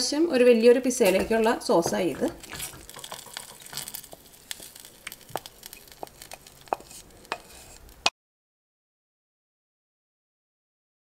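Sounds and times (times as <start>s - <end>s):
spatula clicking on pan and bowl: 1.1s - 8.1s
spatula scraping sauce from pan: 1.1s - 8.1s.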